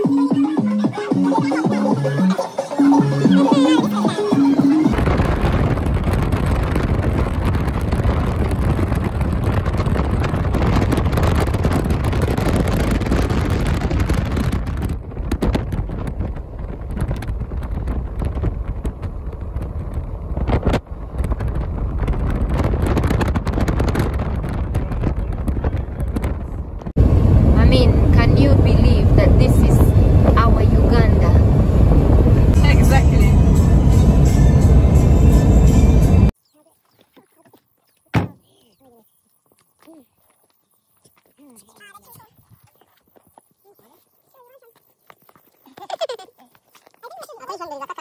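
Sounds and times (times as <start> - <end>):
wind buffeting microphone: 3.2 - 36.3
car road noise rumble: 4.8 - 36.4.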